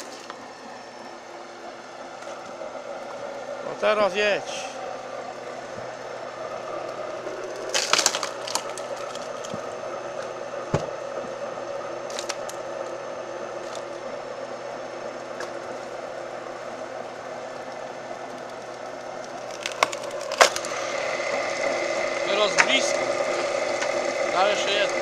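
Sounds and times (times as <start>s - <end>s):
firewood processor engine humming: 0.0s - 25.0s
wood cracking and splintering: 6.9s - 9.7s, 12.0s - 12.9s, 17.4s - 25.0s.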